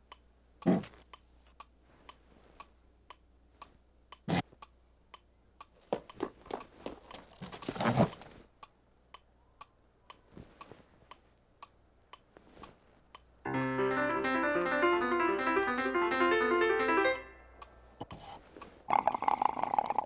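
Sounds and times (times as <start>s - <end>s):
steady ticking: 0.0s - 12.3s.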